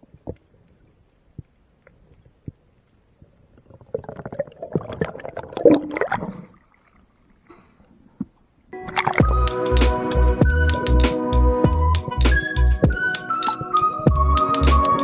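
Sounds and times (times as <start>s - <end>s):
faint clicks: 0.0s - 3.8s
underwater bubbling and rushing water: 0.0s - 7.4s.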